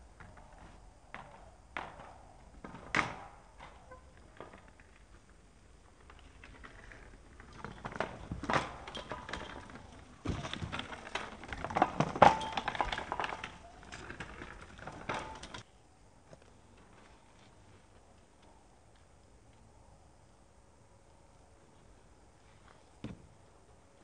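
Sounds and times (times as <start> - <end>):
bicycle rolling over dirt: 0.0 - 19.1.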